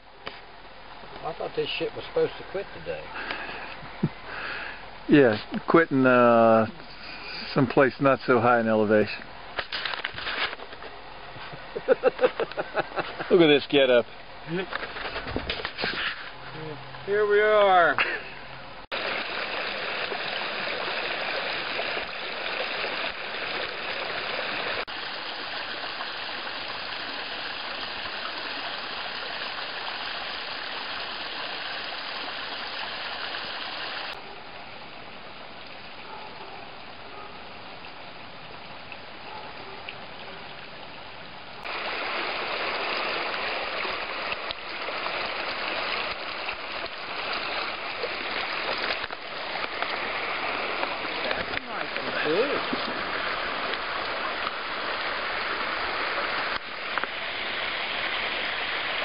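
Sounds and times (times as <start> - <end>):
brook running over rocks: 18.9 - 59.0.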